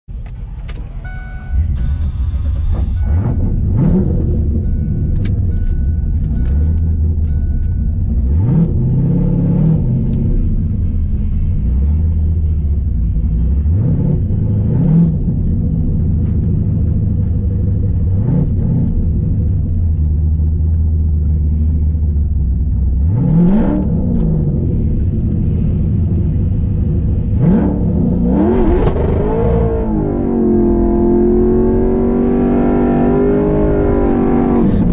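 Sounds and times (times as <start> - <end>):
car engine idling: 0.1 - 14.6, 18.8 - 23.2, 23.8 - 30.7
engine throttle blips: 0.1 - 34.9.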